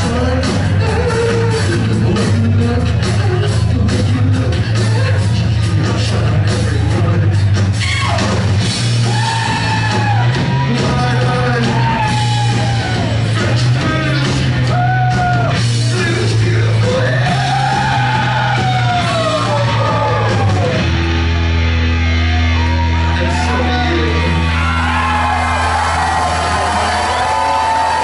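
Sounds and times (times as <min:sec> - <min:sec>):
man singing and yelling: 0:00.0 - 0:08.4, 0:09.0 - 0:20.8, 0:23.1 - 0:24.9
rock band playing: 0:00.0 - 0:28.0.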